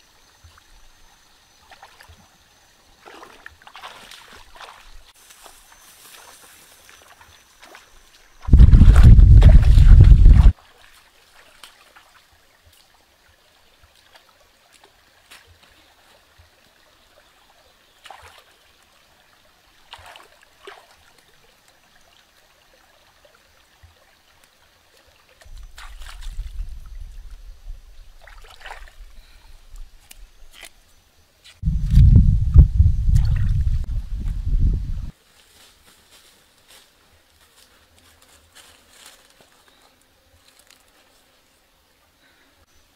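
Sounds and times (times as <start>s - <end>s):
stream water trickling: 0.0s - 35.1s
small splashes of rinsing: 1.6s - 2.3s, 3.0s - 5.2s, 18.0s - 18.8s, 19.8s - 21.4s, 24.9s - 27.4s, 28.0s - 29.4s
low rumble: 31.6s - 35.1s.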